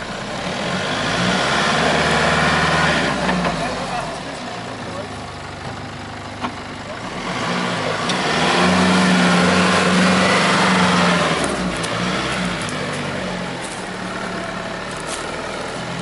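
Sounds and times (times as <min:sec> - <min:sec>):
off-road vehicle engine under load: 0:00.0 - 0:16.0.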